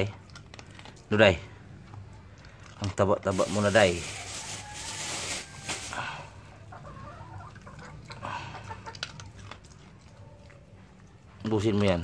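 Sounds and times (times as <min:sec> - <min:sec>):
dog crunching dry kibble: 0:00.0 - 0:05.8, 0:08.9 - 0:12.0.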